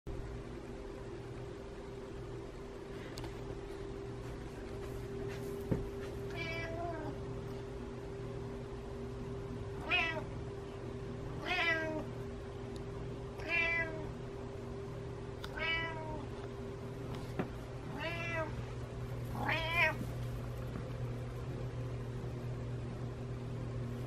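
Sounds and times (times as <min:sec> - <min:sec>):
low hum: 0:00.1 - 0:24.0
cat meowing: 0:06.3 - 0:07.2, 0:09.8 - 0:10.3, 0:11.4 - 0:12.0, 0:13.4 - 0:14.1, 0:15.5 - 0:16.2, 0:17.9 - 0:18.6, 0:19.4 - 0:20.0.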